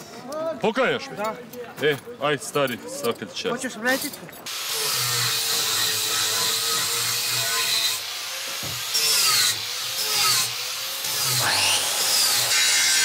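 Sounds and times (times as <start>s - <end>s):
angle grinder grinding: 4.5s - 13.0s.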